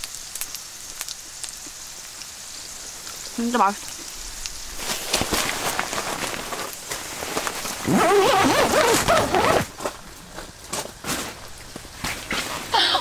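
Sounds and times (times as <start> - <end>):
meat sizzling on a grill: 0.0 - 7.9.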